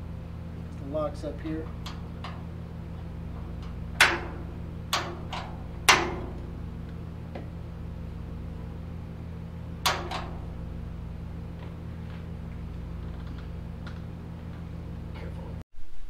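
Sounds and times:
steady low hum: 0:00.0 - 0:16.0
door latch clicks: 0:09.9 - 0:10.4.

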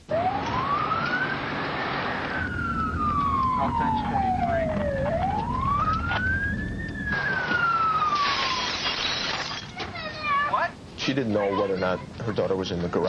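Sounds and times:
emergency siren wailing: 0:00.0 - 0:09.0
low vehicle rumble: 0:00.1 - 0:08.2.

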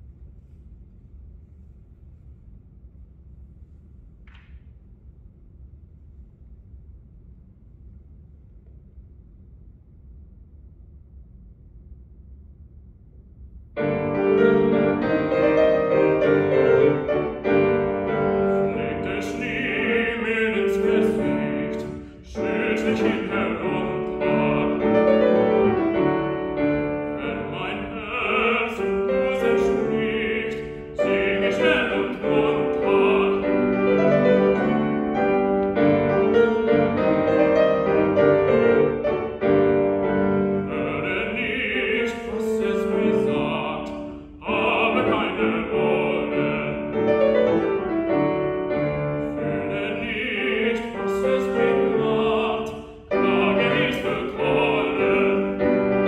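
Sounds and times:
grand piano: 0:13.7 - 0:56.0
man singing classical song: 0:13.8 - 0:56.0.

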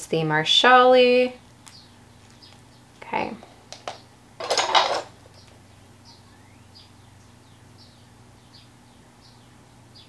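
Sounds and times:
small bird chirping: 0:01.6 - 0:03.0, 0:05.3 - 0:10.0.

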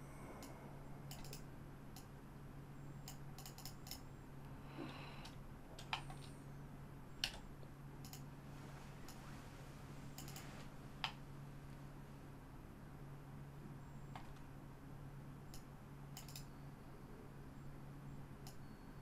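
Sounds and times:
steady low hum: 0:00.0 - 0:19.0
computer mouse clicks: 0:01.1 - 0:02.1, 0:03.0 - 0:04.0, 0:05.2 - 0:06.3, 0:07.2 - 0:08.3, 0:10.1 - 0:11.2, 0:14.1 - 0:14.5, 0:15.5 - 0:16.5, 0:18.4 - 0:18.6.

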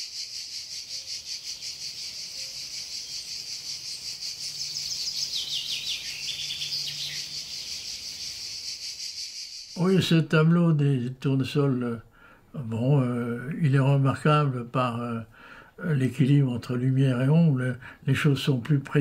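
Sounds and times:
crickets chirping: 0:00.0 - 0:10.1
bird singing falling notes: 0:00.9 - 0:10.0.

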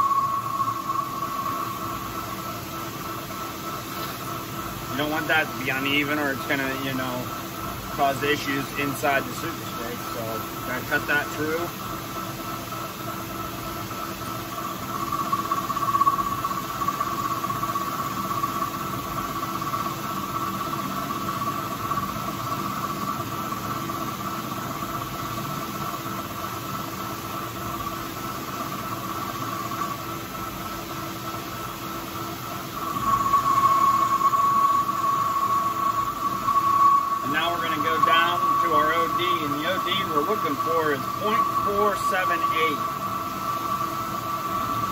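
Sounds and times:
lathe machine hum: 0:00.0 - 0:44.9
metal lathe cutting whine: 0:00.0 - 0:44.9.

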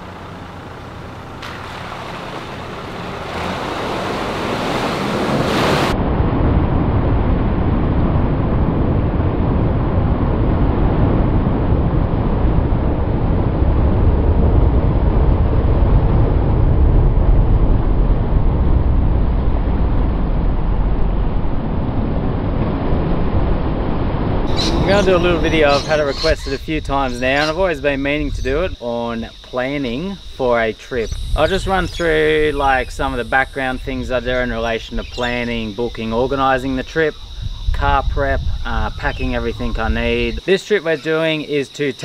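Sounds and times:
churning water: 0:00.0 - 0:06.0
vehicle engine rumble: 0:00.0 - 0:06.7, 0:24.2 - 0:40.4.

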